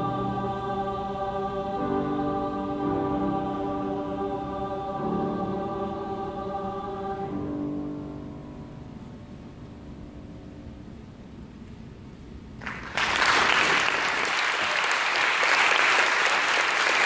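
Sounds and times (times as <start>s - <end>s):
mixed choir singing chords: 0.0s - 9.5s.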